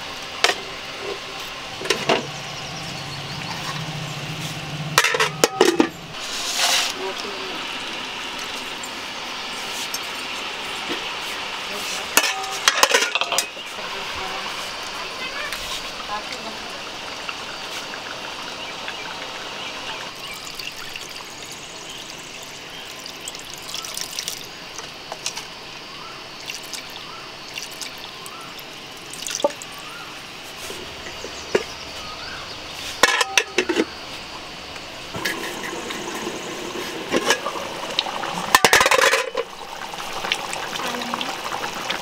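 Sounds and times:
curry cooking in metal pan: 0:00.0 - 0:42.0
steel utensils clinking: 0:04.9 - 0:09.0, 0:12.0 - 0:13.6, 0:33.0 - 0:33.9, 0:38.2 - 0:40.6
metal lid clattering onto pan: 0:05.0 - 0:06.0, 0:12.2 - 0:13.5, 0:33.0 - 0:33.9, 0:38.5 - 0:39.5
liquid pouring into pan: 0:14.7 - 0:24.9, 0:26.4 - 0:29.8, 0:35.2 - 0:42.0.

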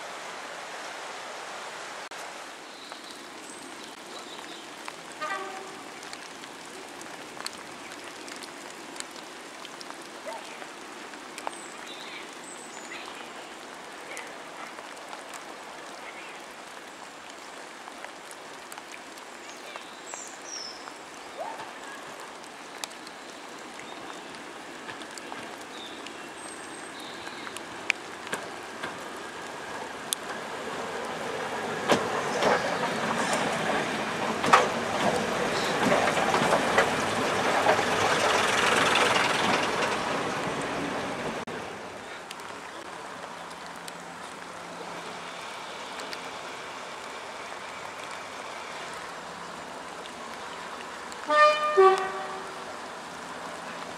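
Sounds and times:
train engine and wheels passing: 0:27.6 - 0:42.0.

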